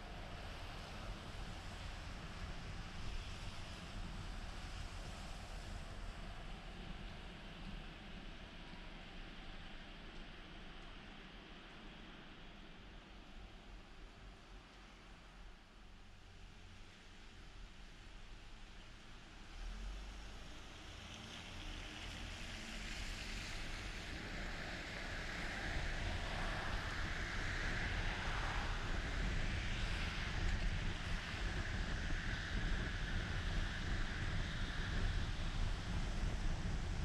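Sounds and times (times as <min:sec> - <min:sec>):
engine and road rumble: 0:00.0 - 0:37.0
tyre hiss on wet road: 0:16.2 - 0:37.0.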